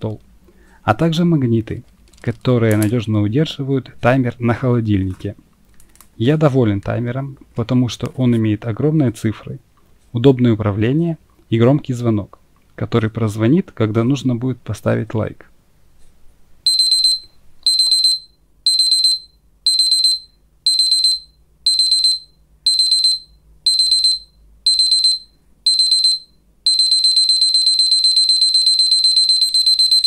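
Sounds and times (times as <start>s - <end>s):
kitchen timer alarm beeping: 16.7s - 30.0s.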